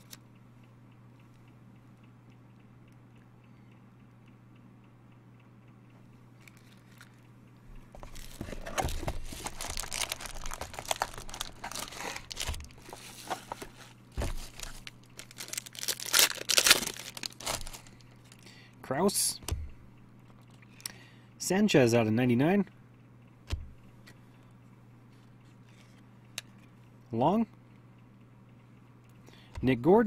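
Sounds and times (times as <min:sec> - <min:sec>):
low steady hum: 0:00.0 - 0:30.0
foil wrapper crinkling and tearing: 0:08.0 - 0:18.4.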